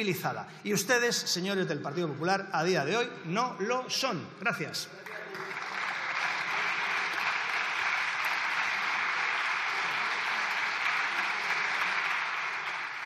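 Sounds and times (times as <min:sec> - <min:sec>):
crowd applause: 0:05.0 - 0:13.0.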